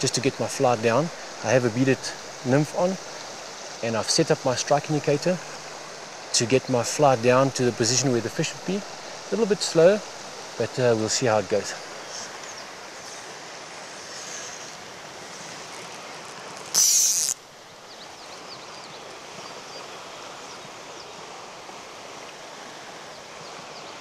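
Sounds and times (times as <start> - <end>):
loud high hiss: 0.0 - 17.5
mountain stream rushing: 0.0 - 24.0.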